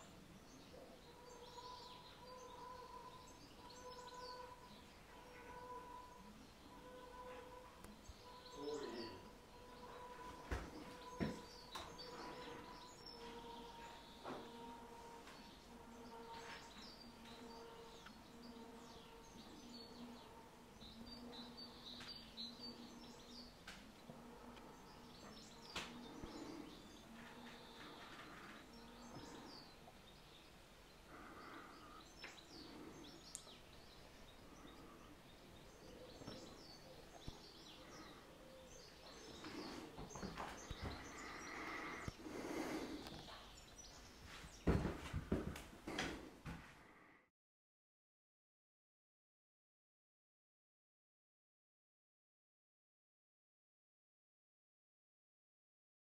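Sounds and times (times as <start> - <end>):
faint bird chirps: 0.0 - 44.4.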